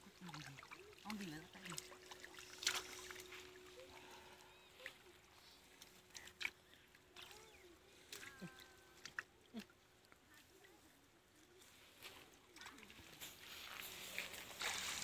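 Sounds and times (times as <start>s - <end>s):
sharp splashes: 0.0s - 5.1s
pond water sloshing: 0.0s - 15.0s
faint chirps: 3.1s - 9.0s.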